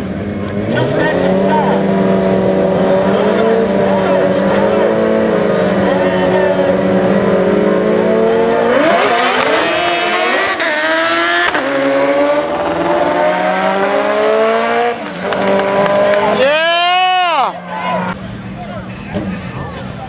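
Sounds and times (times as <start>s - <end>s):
motorcycles revving and accelerating: 0.0s - 18.2s.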